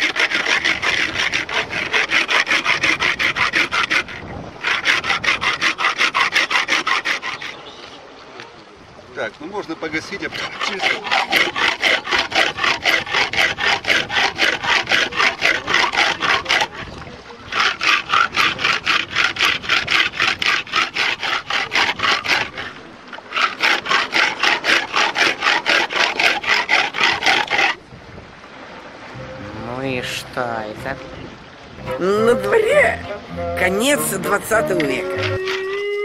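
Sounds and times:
tin can scraping on rock: 0.0 - 7.9, 10.0 - 27.8.

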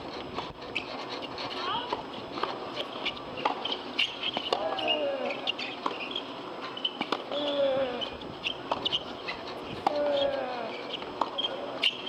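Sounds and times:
tennis ball bouncing and struck: 1.9 - 5.0, 8.4 - 9.1.

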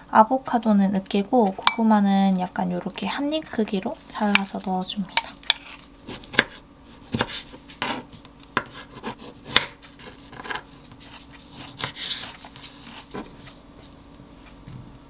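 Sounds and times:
knife slicing tomatoes: 4.3 - 13.6.

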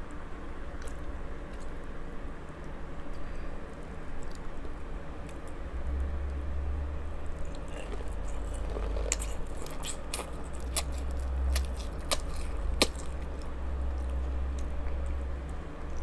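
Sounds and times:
fan humming low: 0.0 - 16.0
wet chewing: 7.4 - 16.0.

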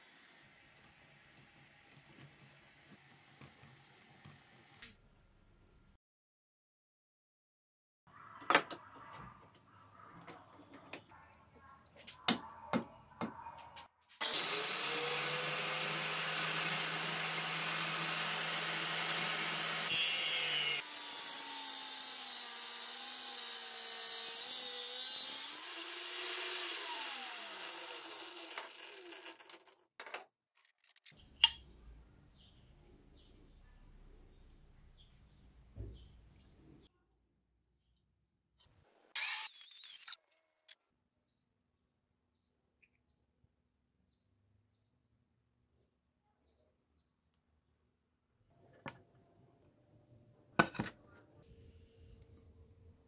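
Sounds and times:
angle grinder cutting steel: 14.2 - 29.8, 39.2 - 40.8.

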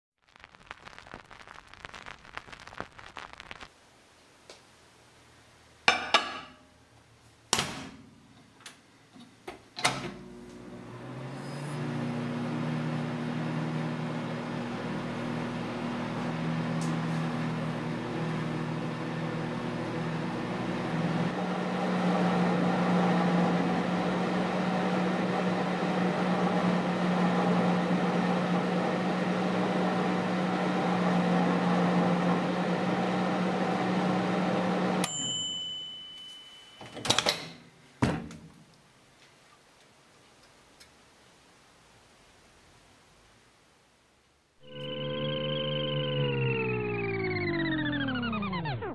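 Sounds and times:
microwave oven humming: 9.8 - 36.1, 44.6 - 48.9
timer bell ding: 35.0 - 37.0.

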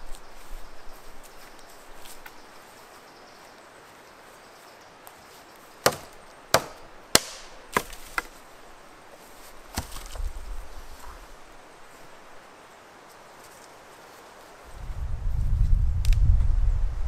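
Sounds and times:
wooden branch snapping: 5.8 - 8.4, 9.7 - 10.4.

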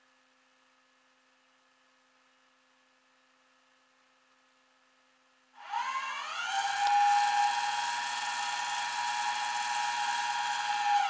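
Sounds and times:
hydraulic pump whine: 5.6 - 11.0.

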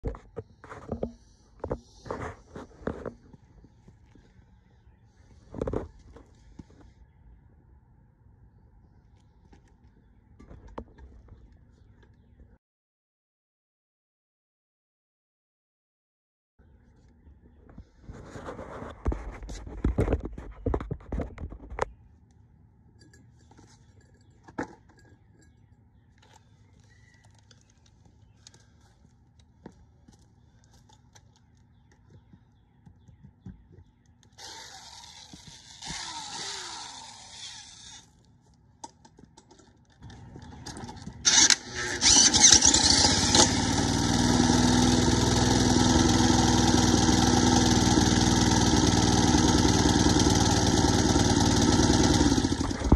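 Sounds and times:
small engine running: 34.3 - 38.2, 40.0 - 52.9
electric drill whirring: 34.4 - 38.1, 41.2 - 52.9.

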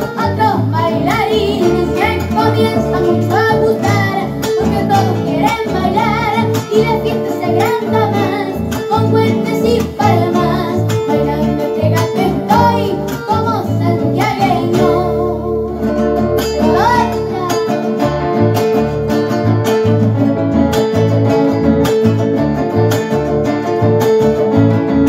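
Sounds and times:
boys singing folk song: 0.0 - 15.7, 16.6 - 17.8
strummed acoustic guitar: 0.0 - 25.0.

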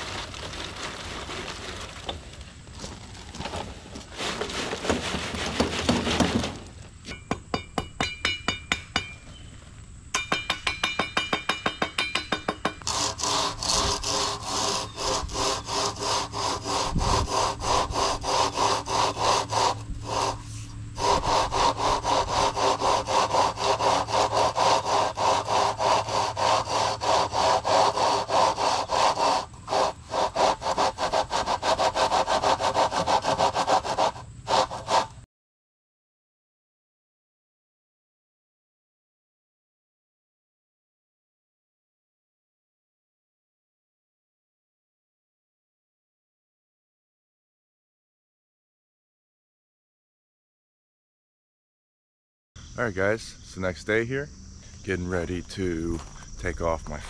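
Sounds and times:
concrete tipped from wheelbarrow: 0.0 - 6.8
board scraping wet concrete: 0.0 - 7.2, 12.8 - 35.2.

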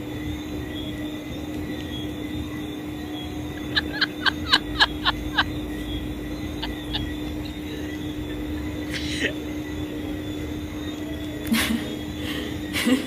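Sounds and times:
steady background hum: 0.0 - 13.0
high descending chirps: 3.4 - 8.9.

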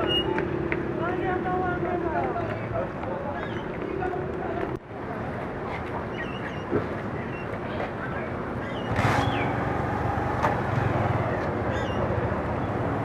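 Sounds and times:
outdoor noise: 0.0 - 13.0
motor vehicle running: 8.7 - 13.0.

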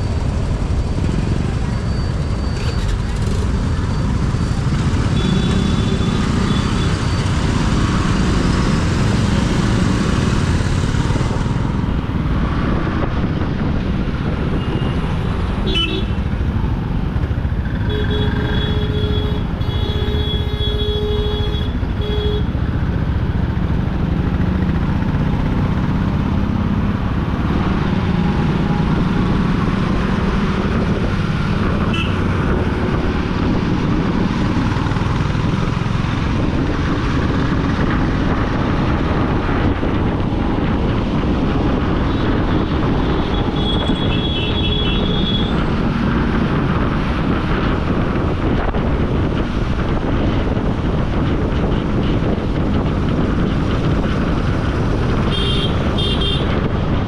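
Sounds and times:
road noise: 0.0 - 57.0
motorcycle engine: 0.1 - 57.0
vehicle horn: 17.9 - 22.5, 31.9 - 32.2, 43.3 - 45.6, 55.3 - 56.5.

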